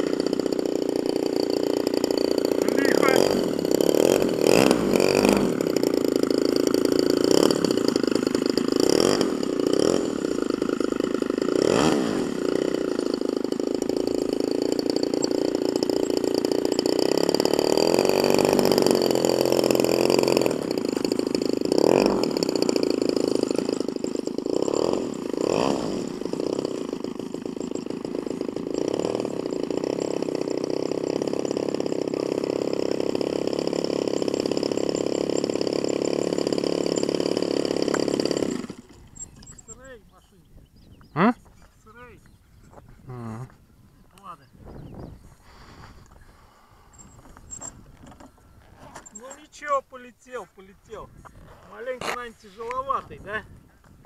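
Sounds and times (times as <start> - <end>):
model plane electric motor buzzing: 0.0 - 39.8.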